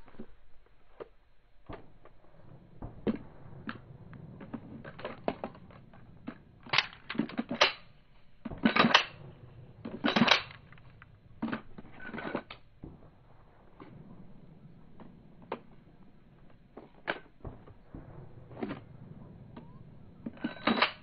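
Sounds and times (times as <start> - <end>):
pistol clicks and scraping rattles: 0.0 - 13.0, 19.6 - 21.0.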